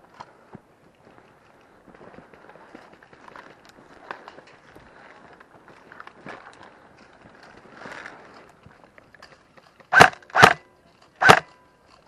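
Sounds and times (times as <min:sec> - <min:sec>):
airsoft rifle shots: 0:09.9 - 0:11.6.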